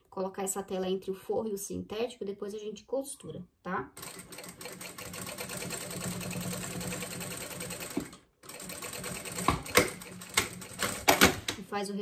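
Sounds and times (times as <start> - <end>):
sewing machine stitching: 4.0 - 11.6.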